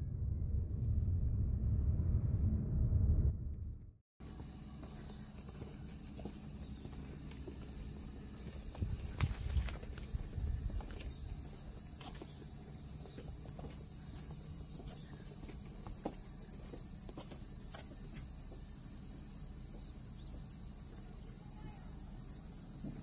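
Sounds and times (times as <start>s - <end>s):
low rumble: 0.0s - 4.0s
insects chirping: 4.2s - 23.0s.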